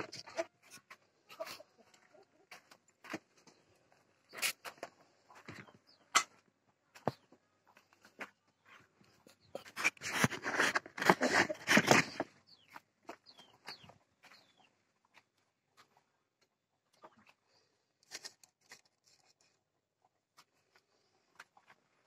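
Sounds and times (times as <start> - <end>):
chickens chirping: 0.0 - 15.2, 16.7 - 17.7.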